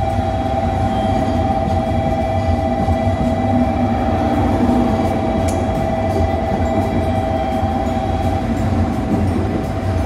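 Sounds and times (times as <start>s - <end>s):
constant whine: 0.0s - 10.0s
train rumbling: 0.0s - 10.0s.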